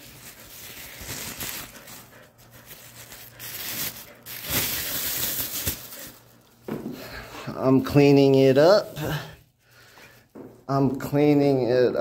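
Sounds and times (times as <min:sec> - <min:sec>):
rustling and crinkling handling noise: 0:00.0 - 0:08.9.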